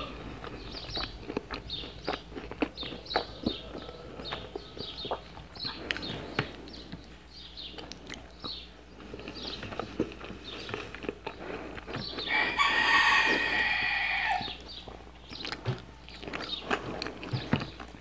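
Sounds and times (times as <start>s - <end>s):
chewing and eating: 0.0s - 18.0s
rooster crowing: 12.3s - 14.6s.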